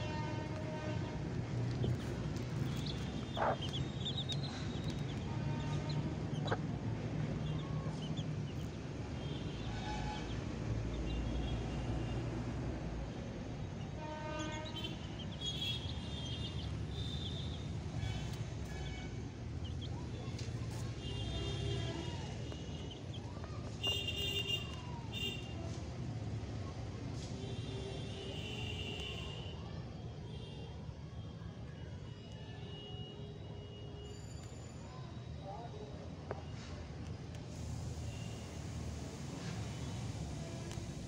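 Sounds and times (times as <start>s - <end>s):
chicks peeping: 2.4s - 6.6s.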